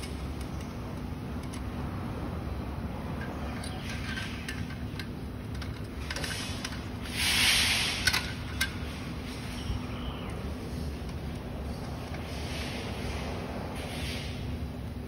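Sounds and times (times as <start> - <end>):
steady background hum: 0.0 - 15.0
metal scraping on metal: 3.2 - 9.8.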